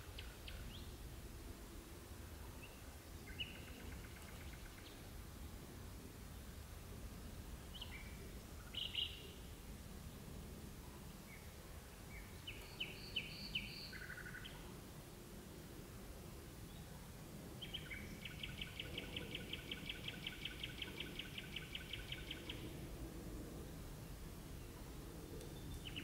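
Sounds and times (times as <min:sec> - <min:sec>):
nightingale singing: 0:07.7 - 0:09.3, 0:12.2 - 0:14.6, 0:17.6 - 0:22.7.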